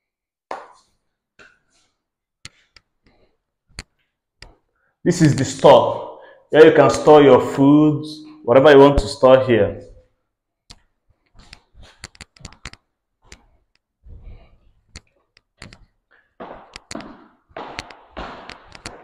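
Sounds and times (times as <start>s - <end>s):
footsteps on tiled floor: 11.1s - 19.0s.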